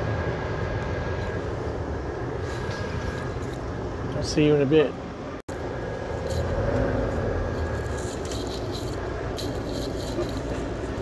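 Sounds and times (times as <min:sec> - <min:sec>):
truck engine and road rumble: 0:00.0 - 0:11.0
light rattles and clicks: 0:07.5 - 0:11.0.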